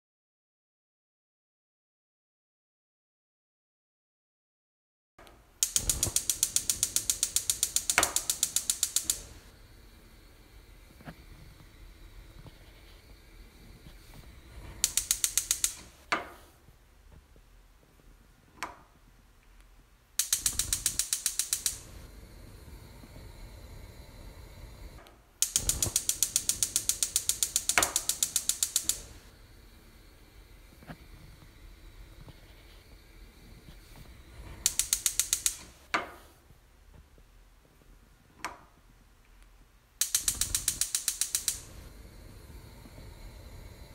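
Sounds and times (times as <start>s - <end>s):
loud snap: 5.2s - 9.5s, 10.4s - 16.4s, 20.2s - 22.0s, 24.9s - 29.3s, 33.6s - 36.2s, 40.0s - 41.8s
gas stove igniter ticking: 5.6s - 16.2s, 20.2s - 36.0s, 40.0s - 43.9s
burning gas hiss: 5.6s - 18.4s, 20.2s - 38.9s, 39.9s - 43.9s.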